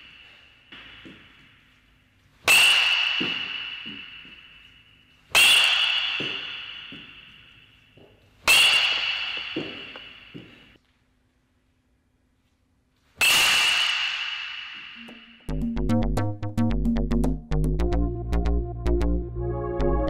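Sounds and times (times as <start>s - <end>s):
metal bat hitting ball: 0.0s - 1.6s, 2.4s - 7.8s, 8.4s - 10.8s, 13.2s - 15.5s.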